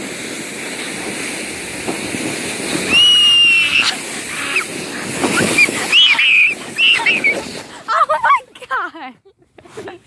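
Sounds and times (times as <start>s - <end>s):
sled sliding on snow: 0.0s - 10.0s
person squealing: 2.9s - 4.7s, 5.4s - 7.4s.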